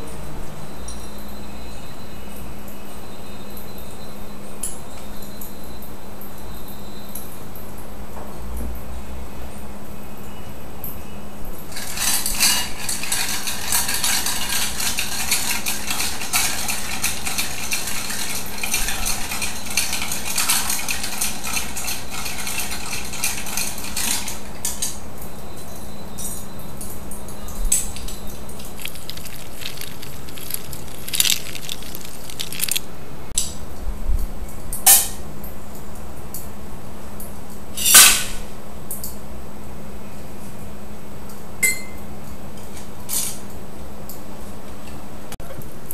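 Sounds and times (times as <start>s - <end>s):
ice clinking against glass: 11.7s - 21.2s, 27.7s - 32.9s.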